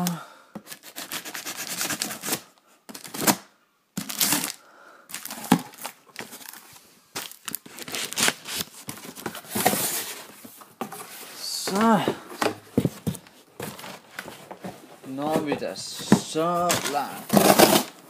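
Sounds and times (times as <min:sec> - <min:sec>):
cardboard box rustling and tearing: 0:07.2 - 0:10.3, 0:16.1 - 0:18.0.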